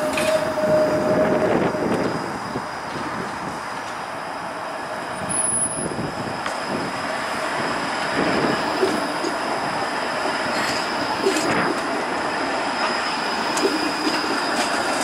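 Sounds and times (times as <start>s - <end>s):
streetcar rolling past: 0.0s - 15.0s
wheels clicking on rails: 8.1s - 15.0s.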